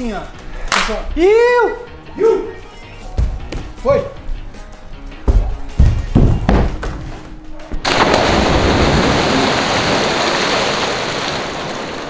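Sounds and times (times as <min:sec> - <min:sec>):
footfall thud: 0:05.3 - 0:10.0
churning water rushing: 0:07.8 - 0:12.0
loud splash into pool: 0:07.8 - 0:12.0.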